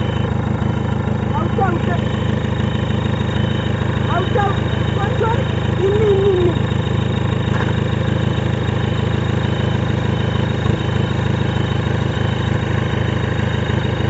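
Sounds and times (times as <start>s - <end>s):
engine running with rough throb: 0.0s - 14.0s.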